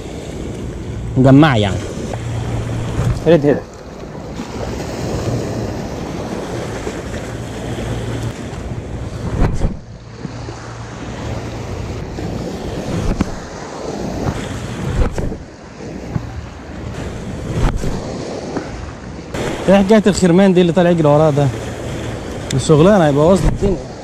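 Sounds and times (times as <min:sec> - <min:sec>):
waves washing over pebbles: 0:00.0 - 0:24.0
wind buffeting microphone: 0:00.0 - 0:24.0
loud thumps: 0:09.2 - 0:10.4, 0:13.0 - 0:13.4, 0:14.2 - 0:15.4.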